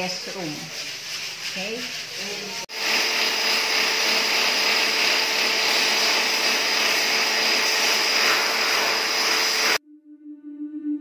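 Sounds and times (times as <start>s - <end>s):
electric drill and shop vacuum: 2.7s - 9.8s.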